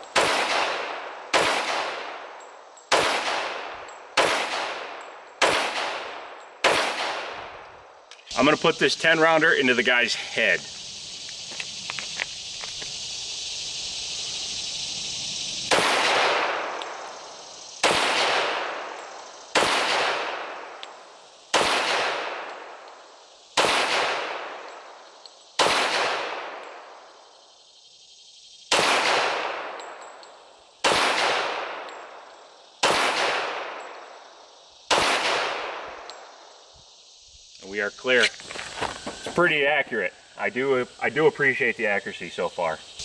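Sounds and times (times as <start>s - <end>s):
pistol shots: 0.0s - 7.6s, 15.7s - 17.1s, 17.8s - 20.8s, 21.5s - 22.8s, 23.6s - 24.7s, 25.6s - 26.6s, 28.7s - 29.9s, 30.8s - 32.1s, 32.8s - 33.9s, 34.9s - 36.2s.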